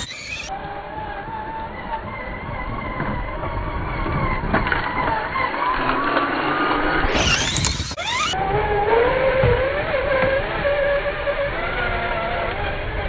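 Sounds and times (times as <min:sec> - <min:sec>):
tyres on gravel: 0:00.0 - 0:00.5, 0:07.1 - 0:08.4
toy truck electric motor whining: 0:00.0 - 0:13.0.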